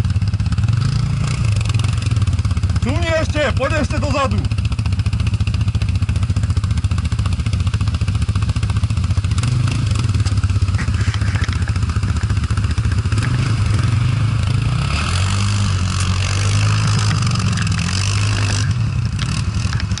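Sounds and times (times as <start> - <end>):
quad bike engine revving: 0.0 - 20.0.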